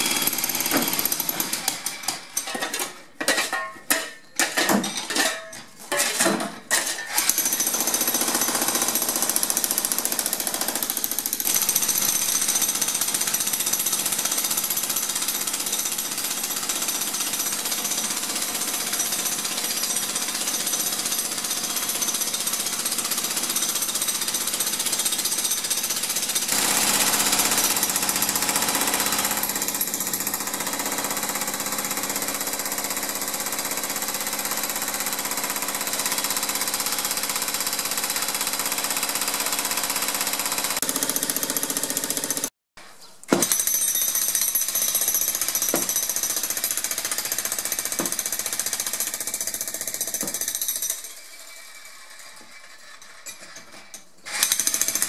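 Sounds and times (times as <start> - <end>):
jackhammer breaking concrete: 0.0 - 2.6, 6.1 - 42.5, 43.4 - 55.0.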